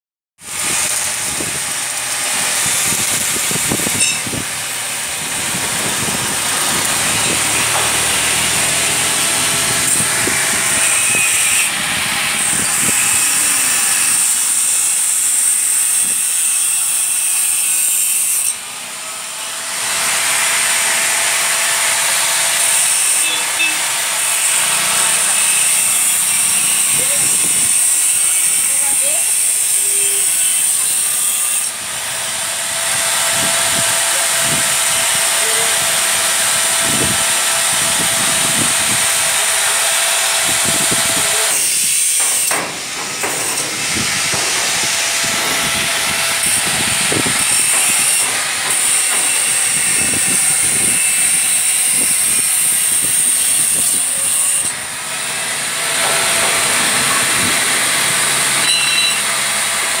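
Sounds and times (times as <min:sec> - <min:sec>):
arc welding hiss: 0:00.4 - 0:11.7.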